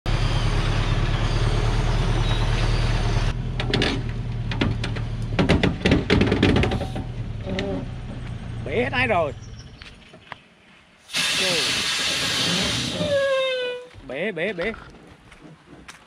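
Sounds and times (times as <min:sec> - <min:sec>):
truck engine running: 0:00.1 - 0:09.7
sharp knocks and clatters: 0:03.6 - 0:08.3
even hiss: 0:11.0 - 0:13.4.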